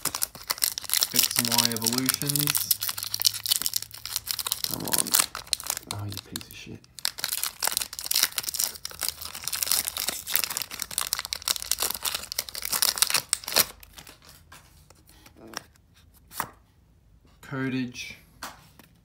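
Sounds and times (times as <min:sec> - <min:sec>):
foil wrapper tearing and crinkling: 0:00.0 - 0:14.3.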